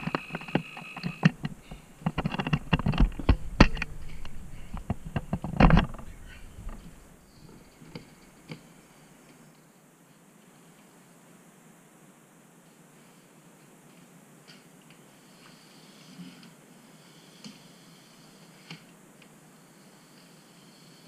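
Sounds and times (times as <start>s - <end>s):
knocks and clatter: 0.0s - 7.0s
loud thumps: 1.3s - 7.1s.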